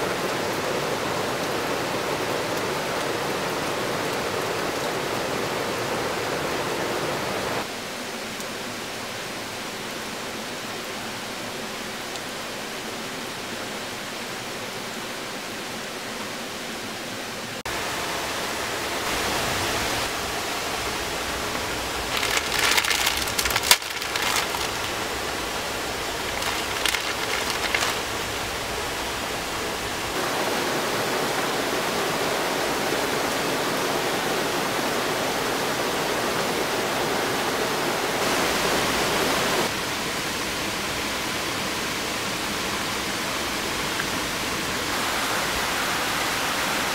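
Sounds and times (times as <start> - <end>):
heavy rain pouring: 0.0 - 46.9
plastic packet crinkling: 22.1 - 25.3, 26.2 - 28.4.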